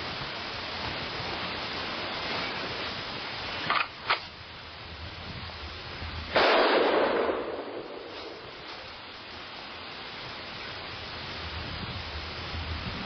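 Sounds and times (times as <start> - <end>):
steady hiss: 0.0 - 13.0
rifle shot with echo: 6.3 - 8.6.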